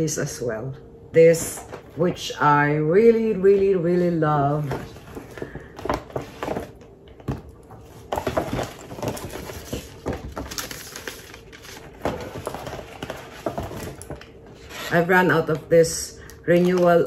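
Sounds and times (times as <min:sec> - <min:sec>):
paper bag rustling and crinkling: 0:07.8 - 0:15.6.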